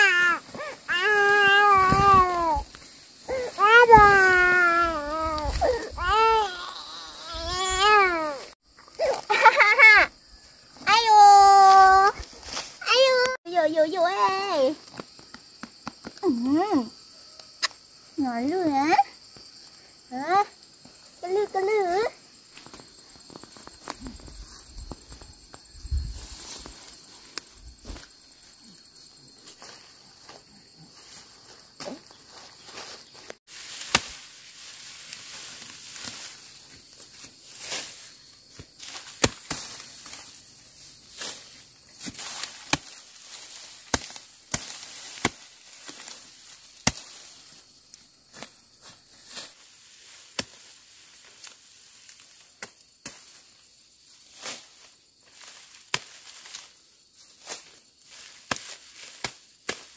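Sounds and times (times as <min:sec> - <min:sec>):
insects droning: 0:00.0 - 0:59.9
machete chopping grass: 0:33.6 - 0:36.4, 0:37.6 - 0:40.3, 0:42.0 - 0:47.3, 0:50.2 - 0:50.7, 0:55.4 - 0:56.7, 0:57.4 - 0:59.9.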